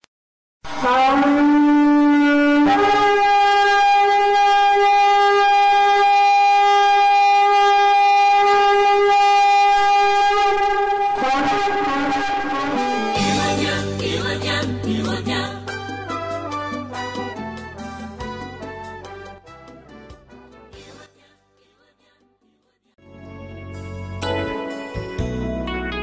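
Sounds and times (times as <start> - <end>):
shofar blast: 0.6 - 14.0, 15.7 - 20.0.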